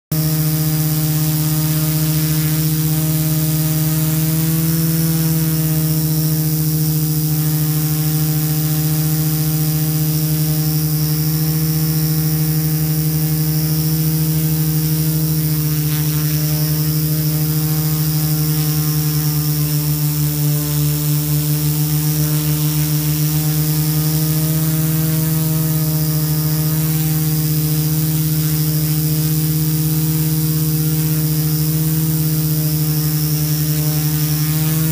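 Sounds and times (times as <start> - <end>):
drone propellers droning: 0.1 - 34.9.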